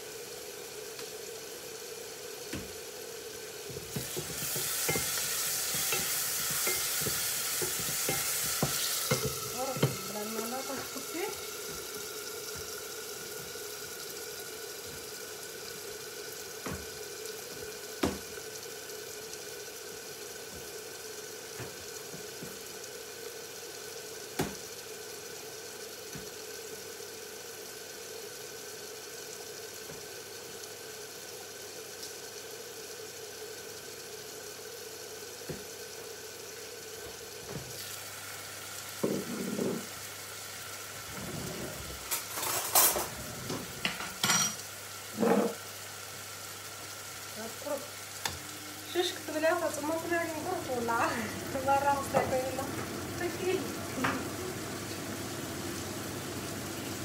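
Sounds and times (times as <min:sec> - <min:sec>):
food sizzling in a pot: 0:00.0 - 0:57.0
steady hum: 0:48.1 - 0:56.8.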